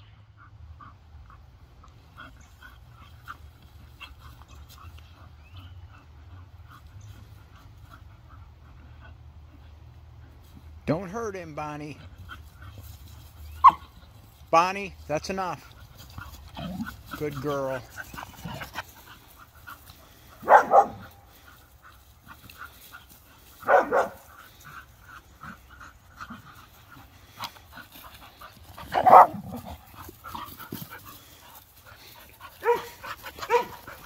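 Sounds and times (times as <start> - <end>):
dogs barking: 13.5 - 14.0, 20.1 - 21.4, 23.6 - 24.6, 28.7 - 30.5, 32.5 - 34.0.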